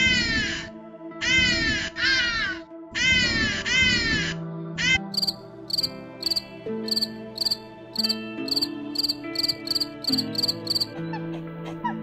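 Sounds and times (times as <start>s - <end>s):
soft background music: 0.0s - 12.0s
cricket chirping: 5.1s - 10.9s.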